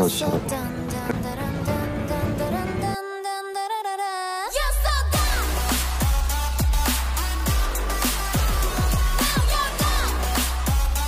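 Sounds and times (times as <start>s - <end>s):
electronic background music: 0.0s - 11.0s
heavy bass: 4.6s - 11.0s.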